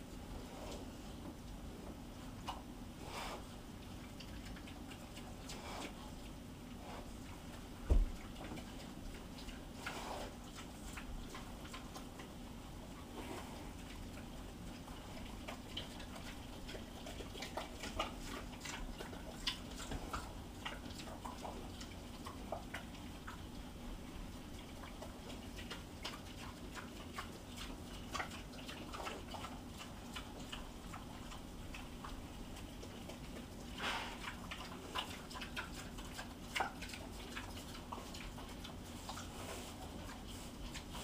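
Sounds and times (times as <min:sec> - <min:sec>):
pigs chewing and smacking: 0:00.0 - 0:41.0.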